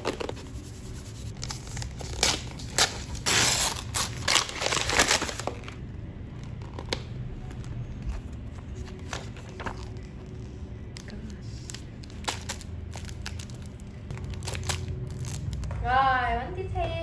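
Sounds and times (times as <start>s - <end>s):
snack packaging crinkling: 1.4s - 5.8s, 11.0s - 15.7s.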